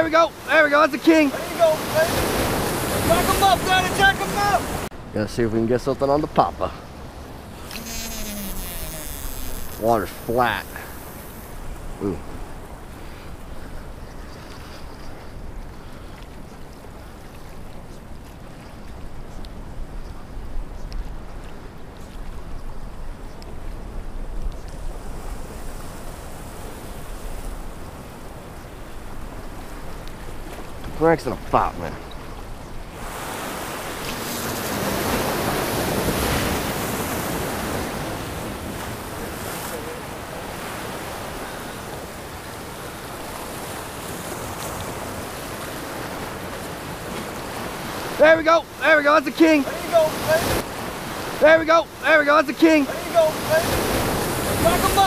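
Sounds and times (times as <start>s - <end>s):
waves washing against rocks: 0.0s - 4.9s, 9.8s - 12.6s, 32.9s - 55.0s.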